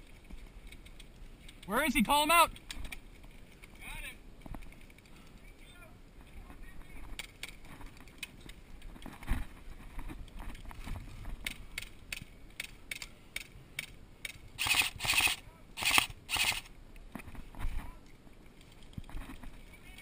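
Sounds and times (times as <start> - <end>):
airsoft rapid fire bursts: 14.6 - 16.7.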